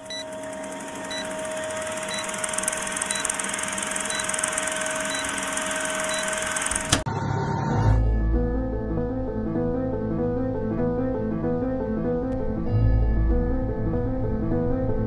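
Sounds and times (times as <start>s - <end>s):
film projector whirring: 0.0s - 7.1s
short blips: 0.0s - 7.1s.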